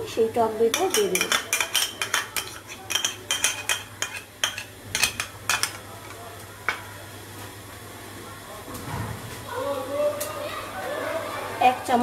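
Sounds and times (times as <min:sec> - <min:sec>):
utensil scraping a glass bowl: 0:00.8 - 0:05.2.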